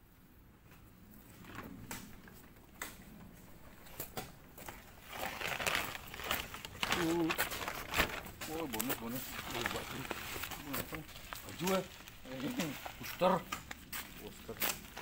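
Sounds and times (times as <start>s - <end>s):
plastic sack rustling: 4.6s - 15.0s.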